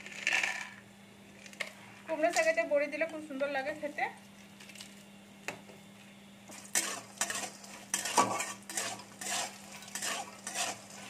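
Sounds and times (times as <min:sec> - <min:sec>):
food frying in hot oil: 0:06.5 - 0:11.0
metal spatula scraping pan: 0:06.7 - 0:11.0.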